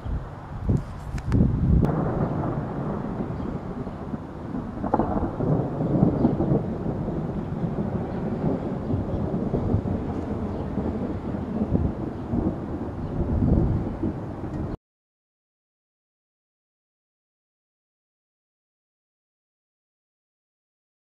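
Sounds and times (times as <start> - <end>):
thunder rumbling: 0.6 - 14.8.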